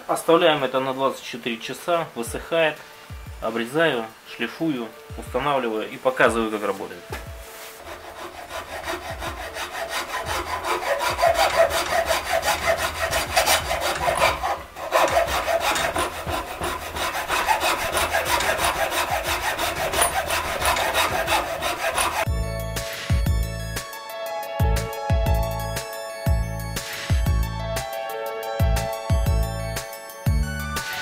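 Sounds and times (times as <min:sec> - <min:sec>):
hacksaw cutting wood: 0:07.8 - 0:22.3.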